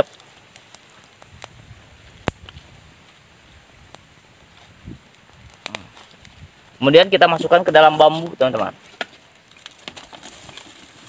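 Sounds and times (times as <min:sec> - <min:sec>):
banana leaf crinkling: 0:04.5 - 0:11.0.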